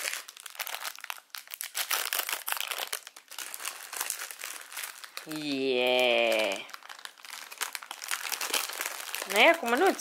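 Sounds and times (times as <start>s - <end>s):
foil wrapper crinkling: 0.0s - 10.0s.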